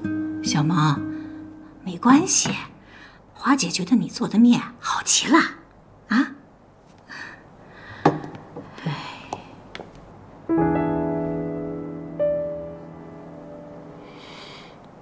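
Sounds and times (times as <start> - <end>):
soft breathy noises: 7.0 - 9.7, 13.9 - 15.0
soft piano chord: 10.5 - 14.7.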